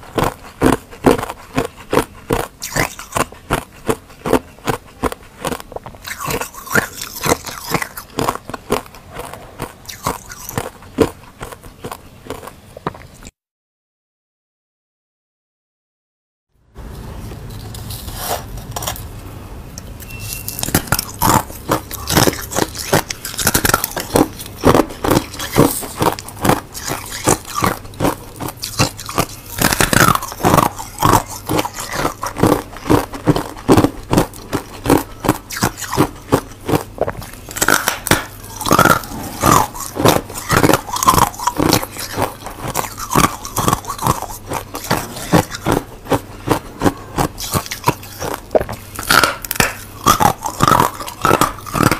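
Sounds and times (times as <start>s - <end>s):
ice crunching being chewed: 0.0s - 13.3s, 20.0s - 51.9s
low steady hum: 16.6s - 51.9s.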